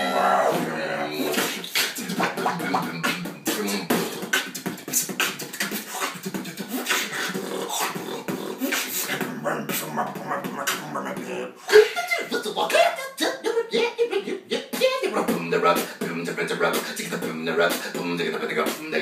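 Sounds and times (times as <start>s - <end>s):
beatboxing: 0.0s - 19.0s.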